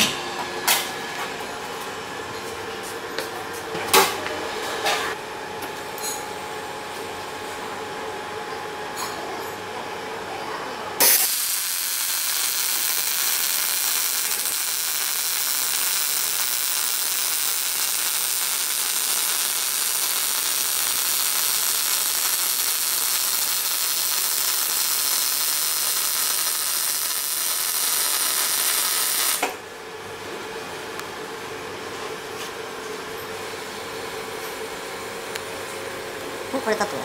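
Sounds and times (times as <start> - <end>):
welding arc hissing: 11.0 - 29.5.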